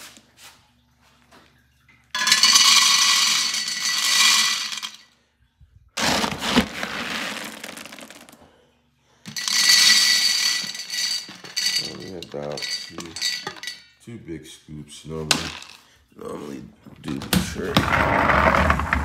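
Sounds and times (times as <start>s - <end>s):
kibble being scooped: 2.2s - 5.0s, 6.0s - 8.4s, 9.3s - 13.5s
kibble pouring into metal bowl: 2.2s - 5.0s, 6.0s - 8.4s, 9.3s - 13.8s.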